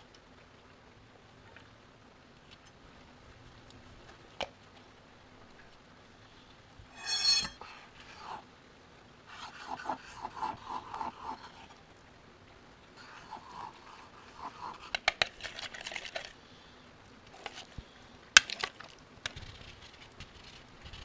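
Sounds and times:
cheese grated on rasp grater: 9.3s - 11.7s, 13.0s - 16.3s.

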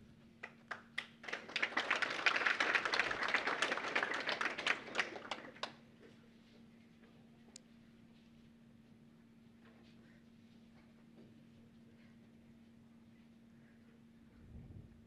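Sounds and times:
audience applauding: 0.7s - 5.8s.

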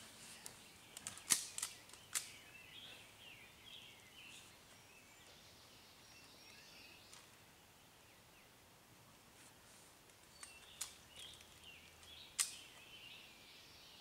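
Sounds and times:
songbird warbling chirps: 0.2s - 7.3s, 10.3s - 14.0s
sharp clicks: 0.4s - 2.4s, 10.1s - 12.8s.

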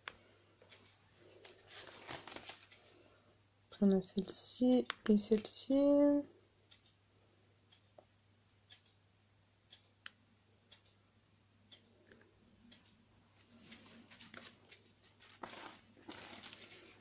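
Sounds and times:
paper rustling: 1.3s - 2.8s, 13.9s - 17.0s.

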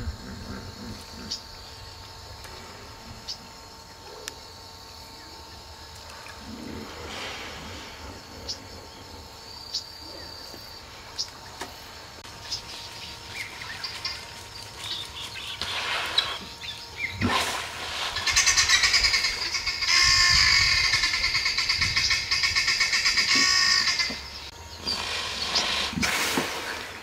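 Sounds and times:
faint insect hum: 0.0s - 27.0s
loud fast-pulsing animal call: 17.1s - 24.2s.

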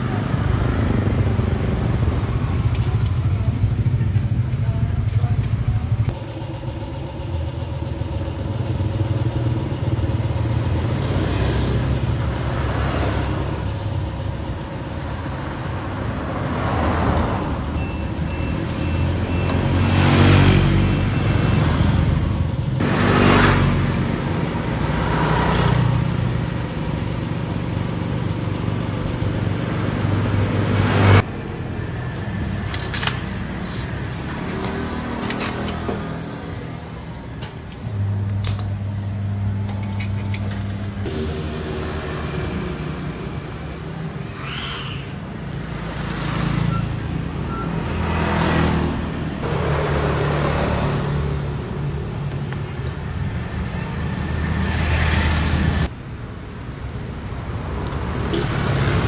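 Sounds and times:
motorcycle engine running: 0.0s - 16.8s.

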